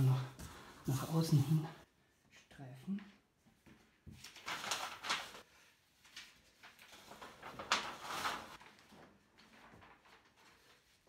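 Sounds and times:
paper sheets rustling: 0:03.5 - 0:11.0.

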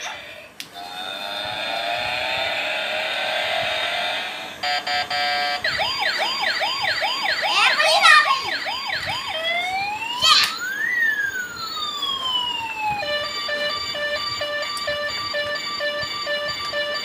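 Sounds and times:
electronic beeping: 0:04.6 - 0:07.8, 0:11.4 - 0:17.0
toy siren wailing: 0:04.6 - 0:17.0.

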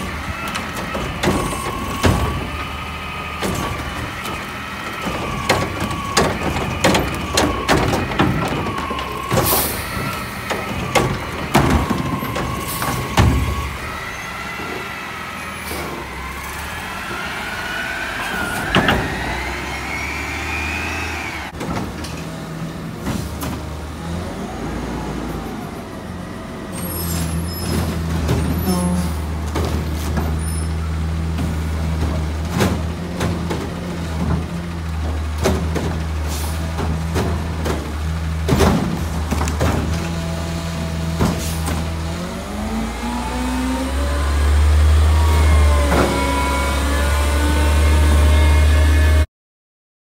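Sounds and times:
cart knocking and clanking: 0:00.0 - 0:14.0, 0:21.5 - 0:23.8, 0:27.4 - 0:42.0
hydraulic whine: 0:00.0 - 0:21.6.

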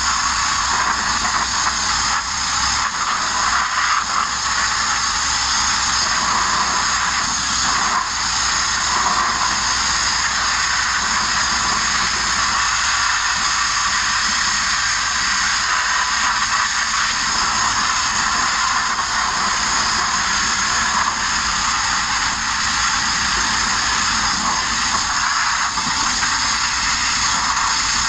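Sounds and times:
grit blasting nozzle hissing: 0:00.0 - 0:28.0.

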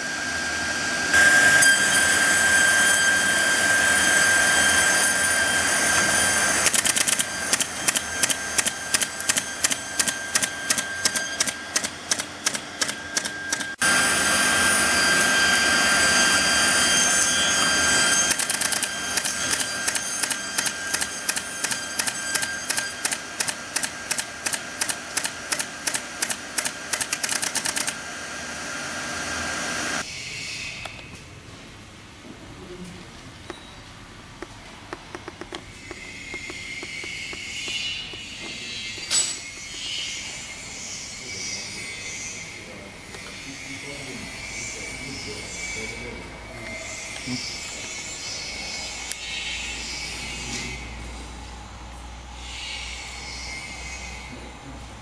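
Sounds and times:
machine whine: 0:00.0 - 0:31.3, 0:34.8 - 0:55.0
pneumatic nailer shots: 0:06.6 - 0:13.8, 0:18.3 - 0:28.0.

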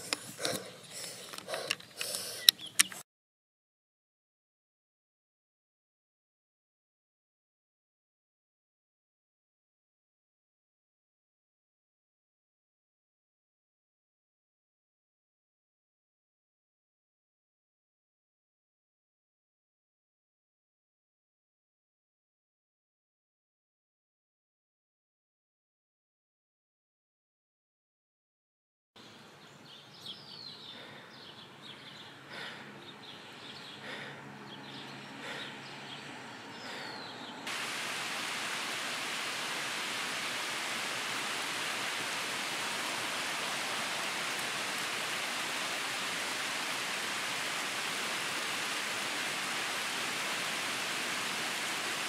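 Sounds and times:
rain falling: 0:37.5 - 0:52.0.

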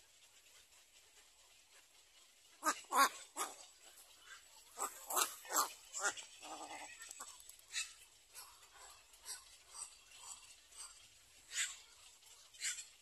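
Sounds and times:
harsh bark-like animal calls: 0:02.6 - 0:03.7, 0:04.7 - 0:10.9, 0:11.5 - 0:11.8.

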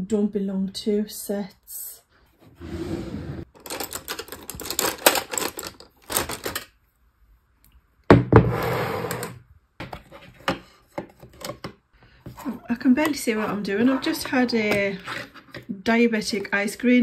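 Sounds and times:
hands rummaging through drawer: 0:03.4 - 0:06.7.

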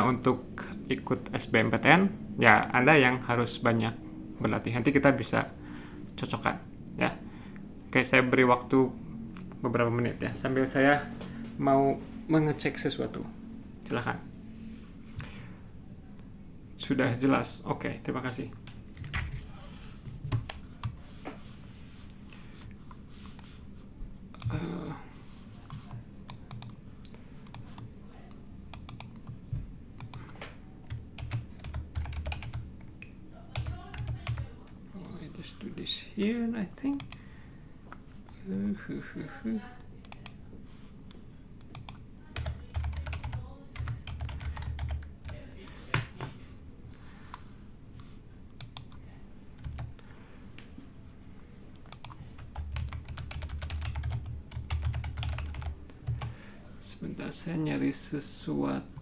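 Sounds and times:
typing on computer keyboard: 0:25.7 - 0:26.8, 0:30.0 - 0:32.7, 0:33.5 - 0:34.5, 0:41.6 - 0:46.1, 0:49.6 - 0:49.9, 0:51.8 - 0:56.3.

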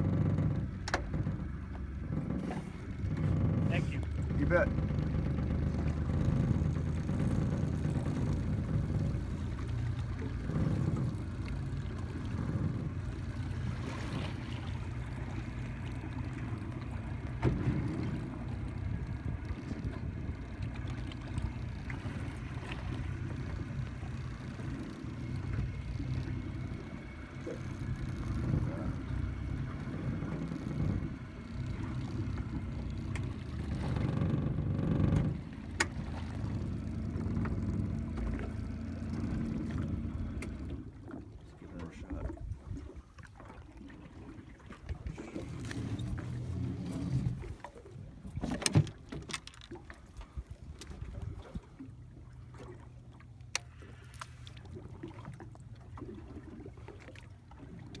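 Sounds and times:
light clicks and knocks: 0:00.0 - 0:13.4
small boat engine running: 0:00.0 - 0:58.0.

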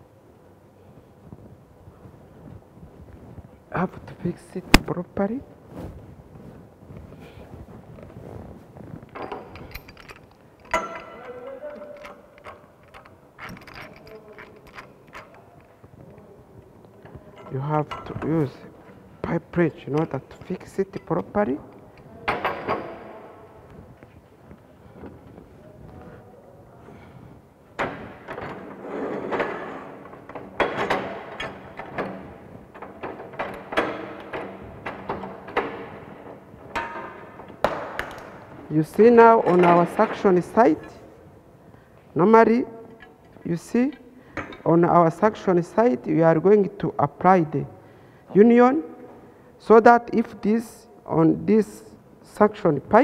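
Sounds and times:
pipe wrench clicking and clanking: 0:09.1 - 0:15.7.

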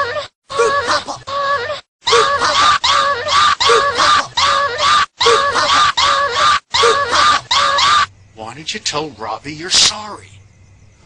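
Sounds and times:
looped shrill cry: 0:00.0 - 0:08.1.

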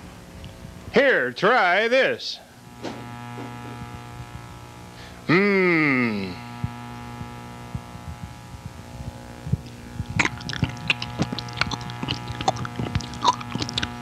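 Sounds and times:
electrical hum: 0:00.0 - 0:14.0
small clicks and crackles: 0:02.7 - 0:04.5, 0:06.6 - 0:14.0.

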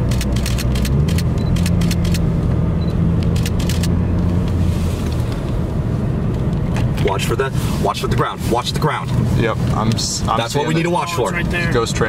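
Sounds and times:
car engine and road drone: 0:00.0 - 0:12.0
sharp clicks: 0:00.1 - 0:02.2.

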